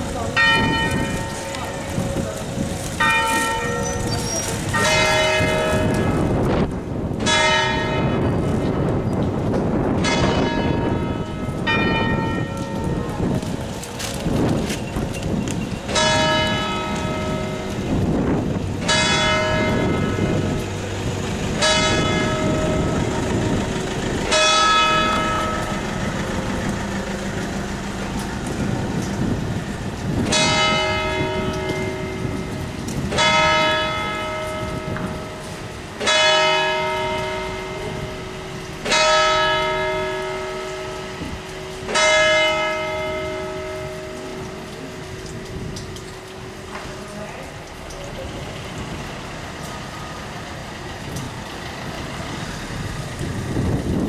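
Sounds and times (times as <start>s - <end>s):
church bell tolling: 0.0s - 9.0s, 9.8s - 13.7s, 15.8s - 27.9s, 30.2s - 47.2s
wind on microphone: 0.0s - 36.0s, 36.6s - 54.0s.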